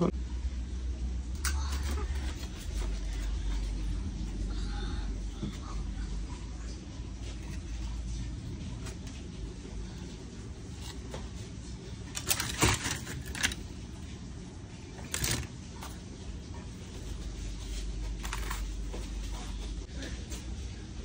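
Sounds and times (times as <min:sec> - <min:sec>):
low hum: 0:00.0 - 0:21.0
aluminium foil crinkling: 0:12.1 - 0:13.7, 0:15.0 - 0:15.5.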